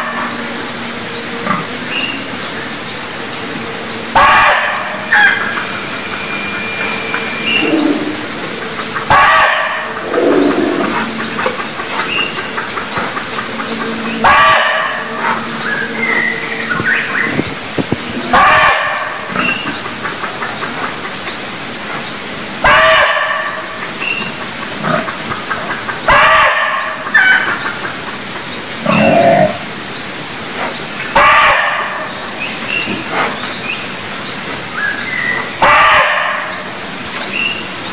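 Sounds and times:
forest background: 0.0 - 37.9
deer barking: 4.2 - 5.4, 9.1 - 10.4, 14.2 - 15.1, 18.3 - 19.1, 22.6 - 23.5, 26.1 - 27.0, 31.2 - 32.1, 35.6 - 36.5.

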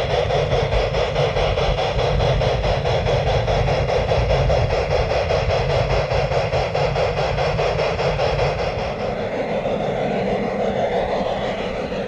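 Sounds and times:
model train clattering on track: 0.0 - 9.8
low rumble: 7.2 - 12.0.

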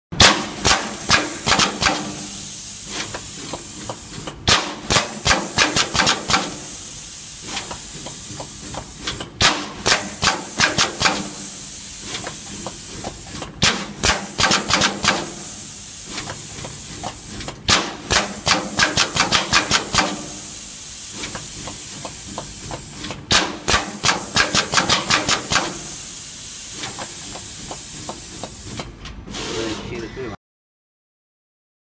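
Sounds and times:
machine rapid sharp clicks: 0.6 - 2.2, 4.5 - 6.7, 9.4 - 11.4, 13.6 - 15.4, 17.5 - 20.2, 23.3 - 25.8
steady hiss: 0.6 - 28.8.

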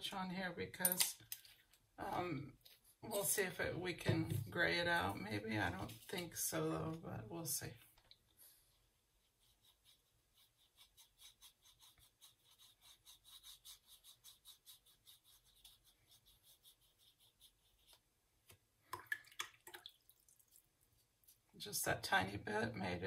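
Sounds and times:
paintbrush scrubbing on paper: 5.7 - 6.4, 8.4 - 18.2.

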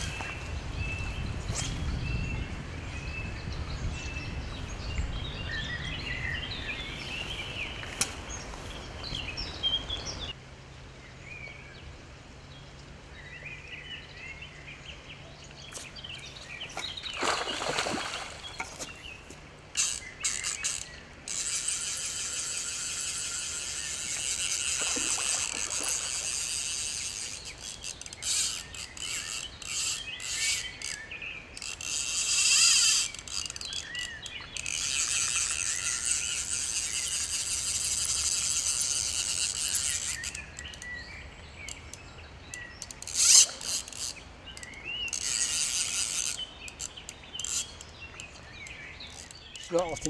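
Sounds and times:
fly reel ratchet buzzing: 19.7 - 40.9, 41.7 - 49.7.

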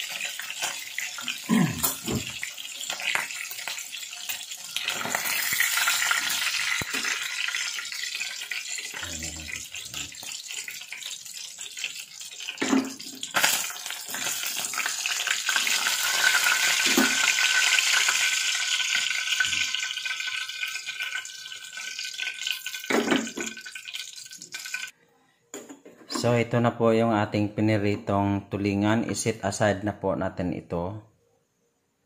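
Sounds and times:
fish sizzling in hot oil: 0.0 - 24.9.

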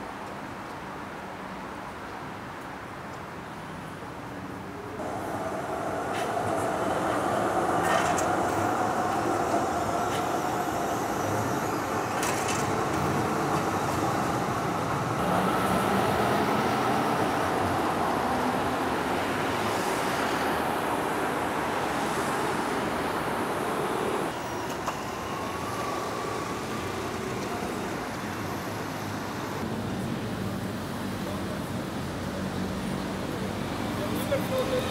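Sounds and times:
tram whine: 4.8 - 32.0
tram wheels rumbling on rails: 4.9 - 34.9.

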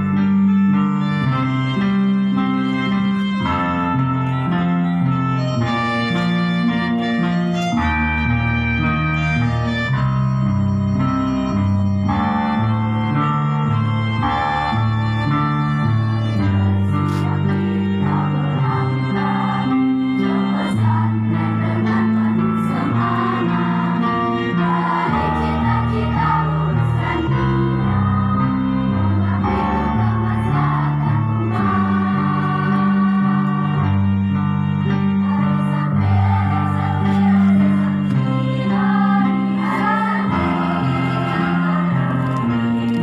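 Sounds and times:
instrumental accompaniment: 0.0 - 43.0
girls choir singing a march: 12.1 - 34.1, 35.2 - 42.8.

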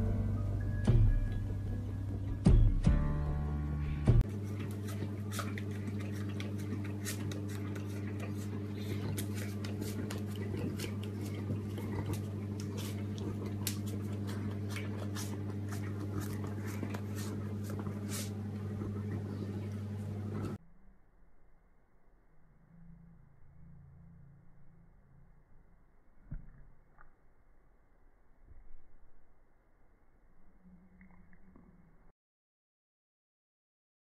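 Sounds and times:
steady low hum: 0.0 - 32.1
dog chewing paper: 4.2 - 19.6.

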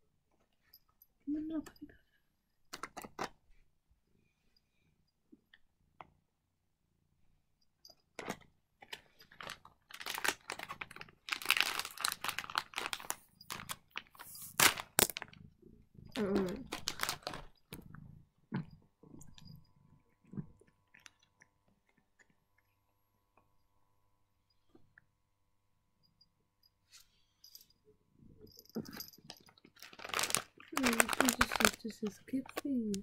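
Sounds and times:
foil bags crinkling: 8.8 - 15.4, 16.2 - 17.6, 29.6 - 33.0.

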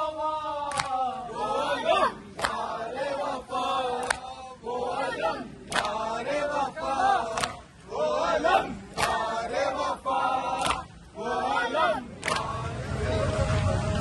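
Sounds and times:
men chanting together: 0.0 - 14.0
chest-beating slaps: 10.6 - 11.0.

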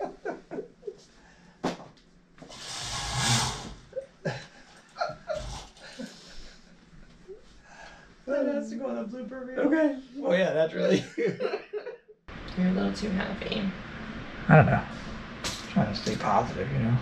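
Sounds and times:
curtains swishing along rail: 2.4 - 3.9
faint breaths or chuckles: 4.0 - 8.2.

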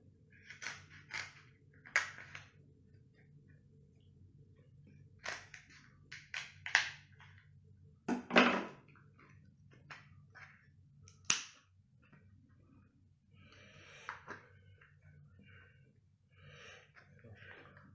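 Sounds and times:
crab shell cracking: 5.2 - 7.0.

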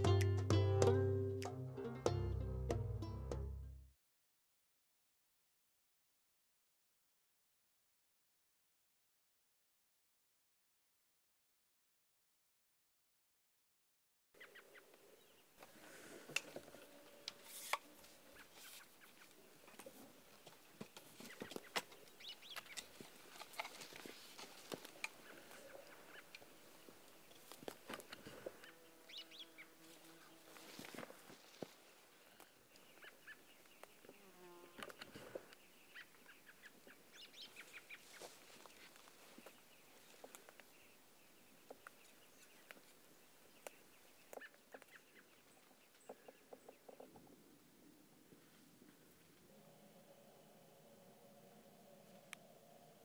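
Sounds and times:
small birds chirping: 14.4 - 47.4
faint outdoor ambience: 14.4 - 53.0
bird chirps: 28.1 - 29.8, 32.7 - 42.8.

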